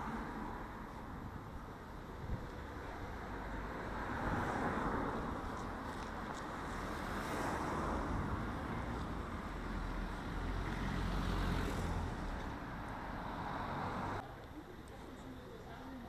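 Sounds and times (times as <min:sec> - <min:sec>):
cars driving past: 0:03.0 - 0:14.2.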